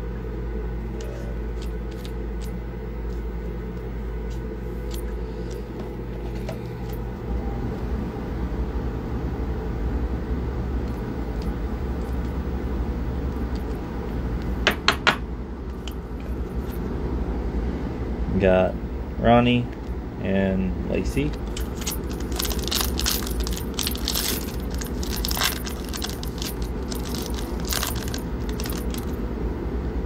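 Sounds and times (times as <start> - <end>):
low mechanical hum: 0.0 - 30.0
trading cards and plastic sleeves clicking: 1.0 - 3.2, 21.3 - 29.2.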